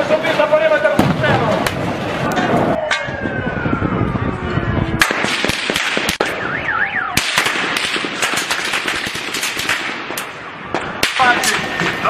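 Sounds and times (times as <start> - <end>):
sharp cracks and pops: 5.0 - 6.4, 7.2 - 12.0.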